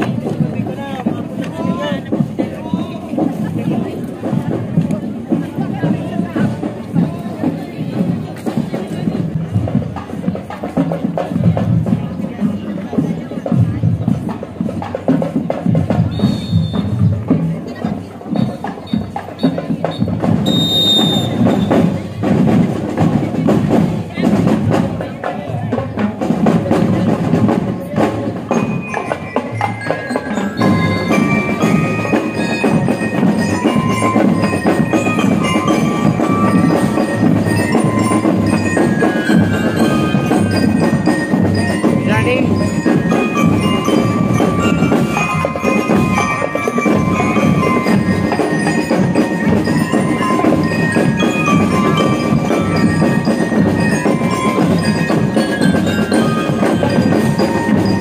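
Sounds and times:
steady drum beat: 0:00.0 - 0:58.0
bell lyre melody: 0:28.4 - 0:58.0.

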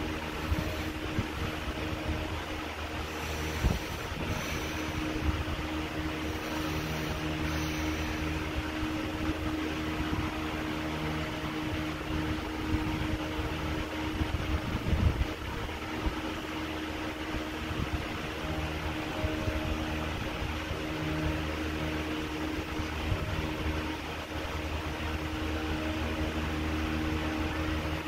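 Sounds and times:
fan-like whoosh: 0:00.0 - 0:13.4
mechanical hum: 0:00.0 - 0:28.0.

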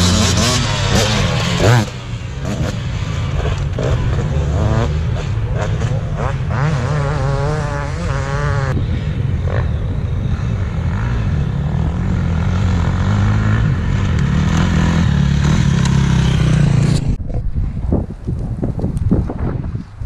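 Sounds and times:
wind buffeting microphone: 0:15.6 - 0:20.0.

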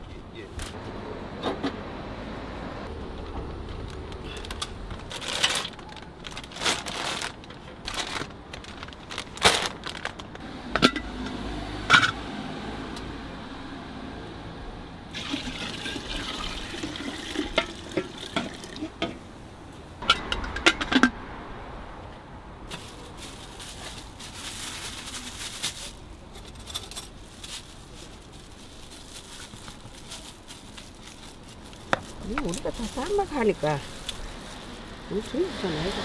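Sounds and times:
broth pouring and splashing: 0:15.1 - 0:18.9.

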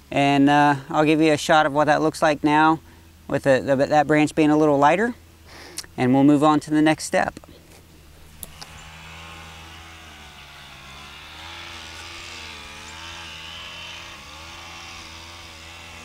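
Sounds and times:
distant engine running: 0:07.8 - 0:16.0.

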